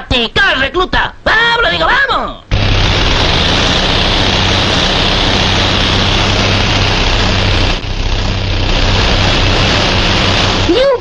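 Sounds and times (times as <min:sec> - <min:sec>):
cartoon tank engine rumble: 0:02.5 - 0:11.0.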